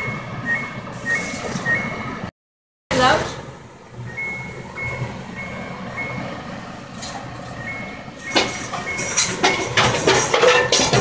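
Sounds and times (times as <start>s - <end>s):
high electronic beeps: 0.0s - 2.3s, 4.0s - 6.3s, 7.5s - 9.6s
dishes clattering: 8.3s - 11.0s.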